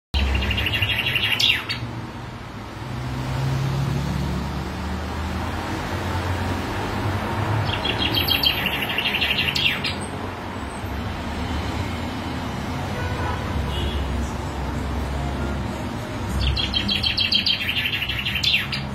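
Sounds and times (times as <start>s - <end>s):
bird singing: 0.1s - 1.9s, 7.6s - 10.2s, 16.3s - 18.9s.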